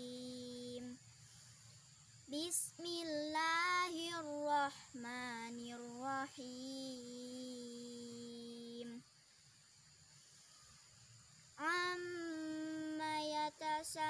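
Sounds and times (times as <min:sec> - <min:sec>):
girl chanting recitation: 0:00.0 - 0:01.1, 0:02.0 - 0:09.1, 0:11.5 - 0:14.0.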